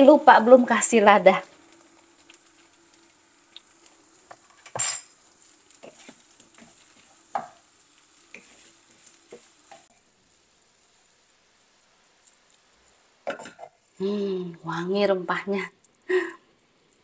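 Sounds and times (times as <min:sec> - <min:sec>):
sizzling in pan: 0:00.0 - 0:17.0
wooden spatula scraping pan: 0:05.7 - 0:07.6, 0:08.3 - 0:10.0.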